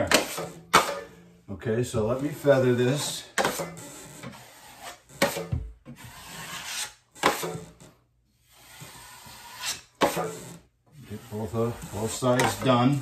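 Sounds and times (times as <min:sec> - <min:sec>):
knife scraping metal pan: 0:02.2 - 0:07.8, 0:08.5 - 0:13.0
taping knife scraping drywall: 0:02.2 - 0:13.0.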